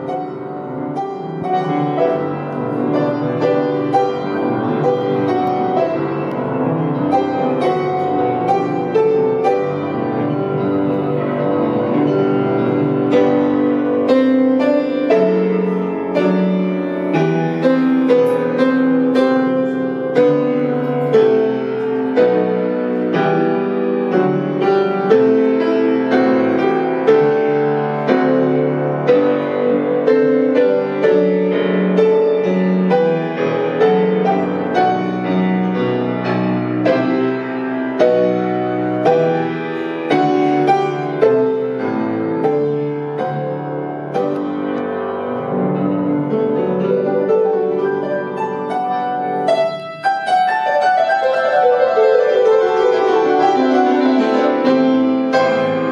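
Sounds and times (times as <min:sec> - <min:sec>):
solo grand piano playing: 0:00.0 - 0:55.9.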